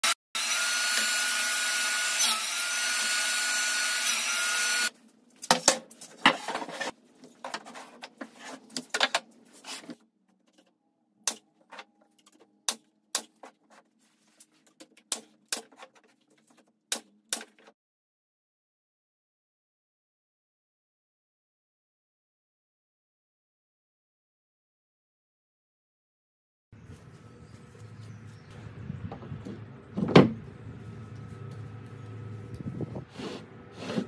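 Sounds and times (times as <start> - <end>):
table saw ripping wood: 0.0 - 4.9.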